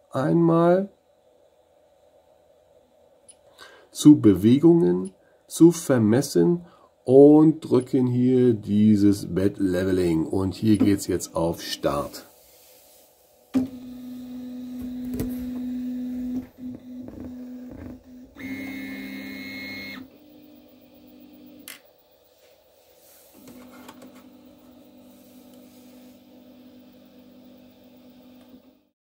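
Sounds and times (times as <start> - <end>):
high motor whine: 13.6 - 22.2, 23.3 - 28.9.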